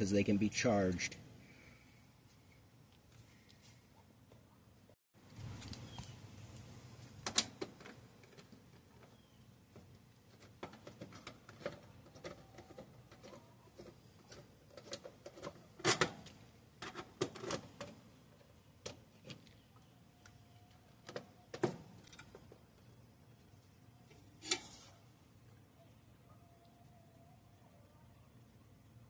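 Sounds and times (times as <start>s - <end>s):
clicks and rustles of wires: 5.3s - 25.1s.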